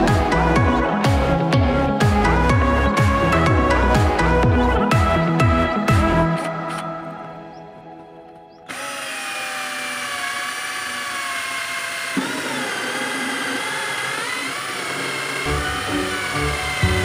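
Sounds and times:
drill click: 8.6 - 17.0
cordless drill cutting pipe: 8.7 - 17.0.

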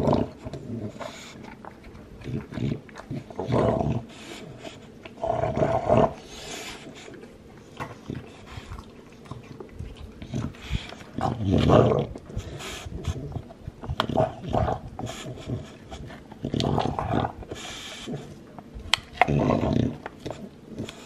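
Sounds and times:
dog throaty bursts: 8.0 - 18.4.

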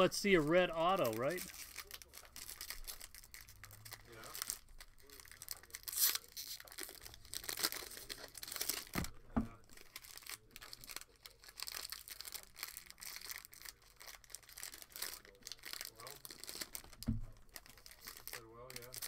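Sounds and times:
card wrappers tearing and crinkling: 0.0 - 19.0
dull thumps: 9.0 - 9.6, 17.0 - 17.4.

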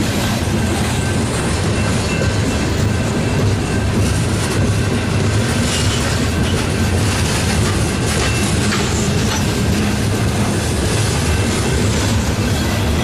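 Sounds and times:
train wheels rumbling on rails: 0.0 - 13.0
wheel squeals: 0.5 - 10.0.

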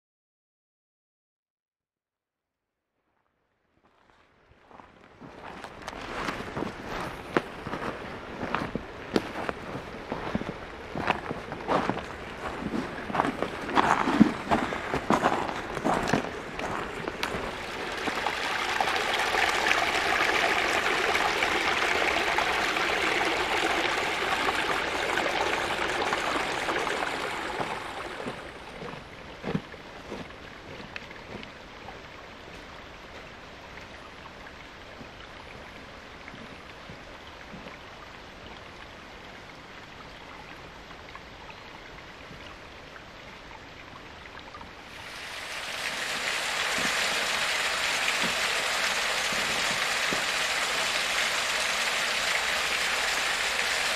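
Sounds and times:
brook trickling over rocks: 3.9 - 53.9
small waterfall rushing: 5.3 - 34.2, 44.8 - 53.9.

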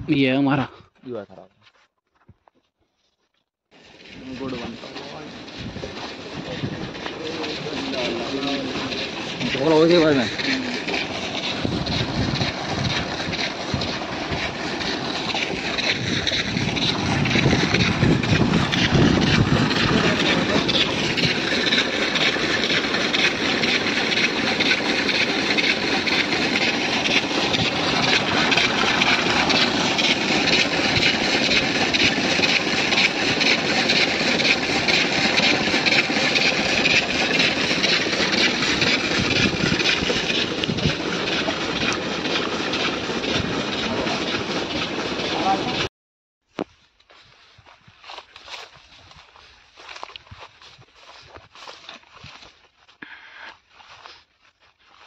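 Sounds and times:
heavy farm machinery clatter: 3.8 - 45.9.

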